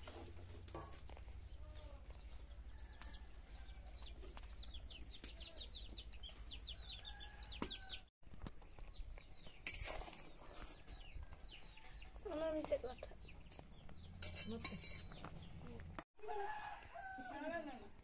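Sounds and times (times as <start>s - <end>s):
chicks peeping: 1.5s - 8.0s.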